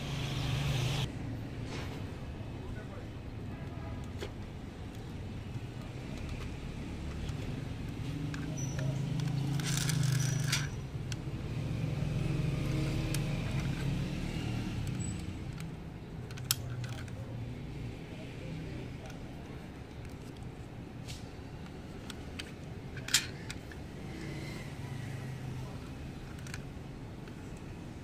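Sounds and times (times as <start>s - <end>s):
toy van clicks and taps: 4.8s - 11.2s, 14.8s - 17.3s, 21.6s - 23.9s, 26.2s - 27.7s.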